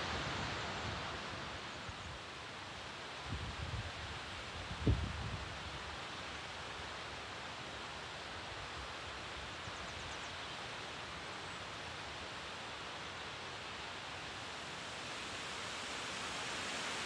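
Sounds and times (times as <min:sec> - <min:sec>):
waterfall rushing: 0:12.6 - 0:17.0.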